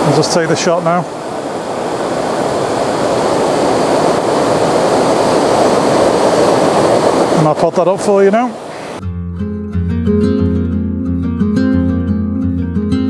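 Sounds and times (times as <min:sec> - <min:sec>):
waterfall and river rushing: 0:00.0 - 0:09.0.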